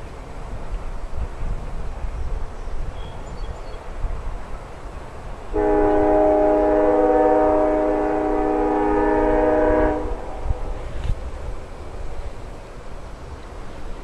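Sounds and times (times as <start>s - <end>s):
wind rumble on microphone: 0.0s - 4.6s, 7.5s - 12.6s
train air horn blast: 5.5s - 11.0s.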